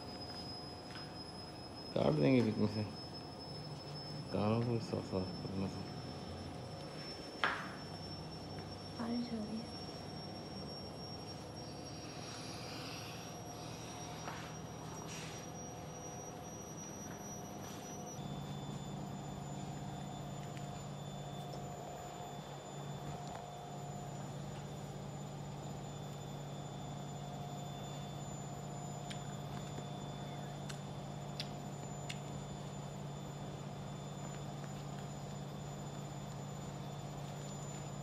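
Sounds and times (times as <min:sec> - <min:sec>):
faint thin high tones: 0:00.0 - 0:24.2
motor humming: 0:00.0 - 0:38.0.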